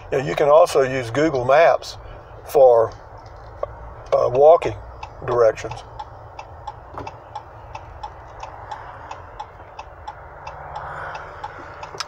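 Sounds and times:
idling engine hum: 0.0 - 12.0
turn signal clicking: 2.8 - 12.0.

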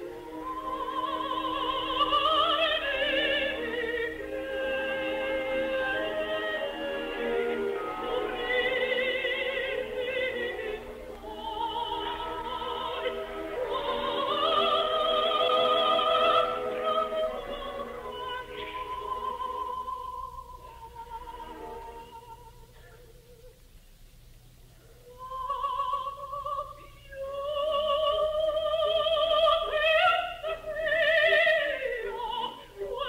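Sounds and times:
orchestra playing: 0.0 - 20.3
operatic soprano singing: 0.0 - 23.6, 25.0 - 33.0
faint low hum: 0.0 - 33.0.

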